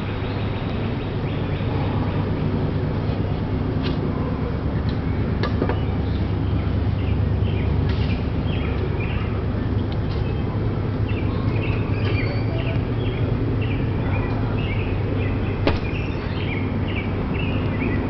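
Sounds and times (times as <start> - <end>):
steady low rumble: 0.0 - 18.0
small birds chirping: 4.2 - 18.0.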